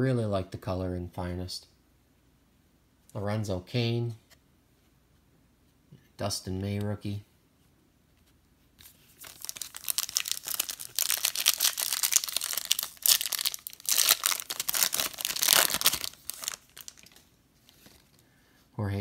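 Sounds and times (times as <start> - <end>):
foil wrapper crinkling: 9.1 - 18.0.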